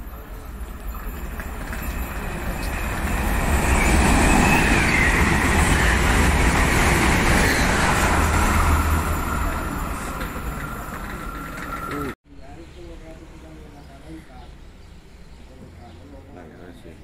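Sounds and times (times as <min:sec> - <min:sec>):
train wheels rumbling on rails: 0:00.0 - 0:12.2.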